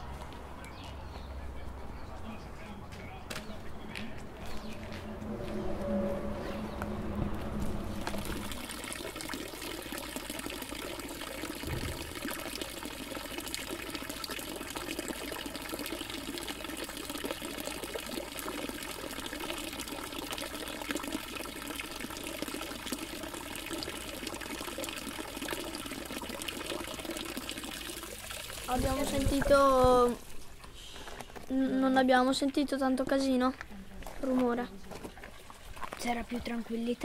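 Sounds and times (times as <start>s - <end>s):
fountain water splashing into basin: 7.9s - 30.4s.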